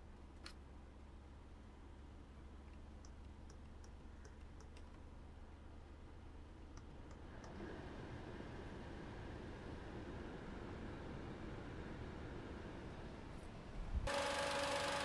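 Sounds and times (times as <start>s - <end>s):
car engine idling hum: 0.0s - 15.0s
air conditioning blower rushing: 14.1s - 15.0s.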